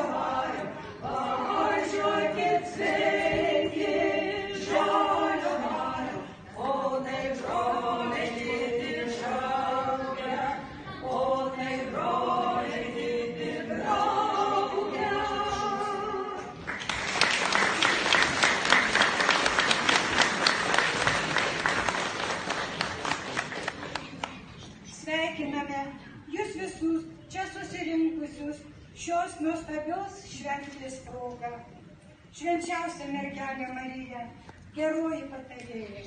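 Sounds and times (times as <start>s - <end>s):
group singing a cappella: 0.0s - 16.6s
audience applause: 16.6s - 24.4s.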